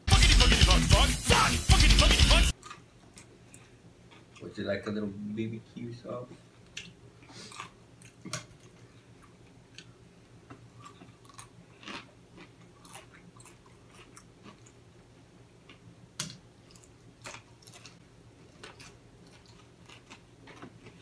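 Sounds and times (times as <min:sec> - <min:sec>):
low steady hum: 0:00.0 - 0:21.0
chewing and biting food: 0:02.6 - 0:04.4, 0:06.7 - 0:09.9, 0:10.5 - 0:14.8, 0:16.6 - 0:21.0.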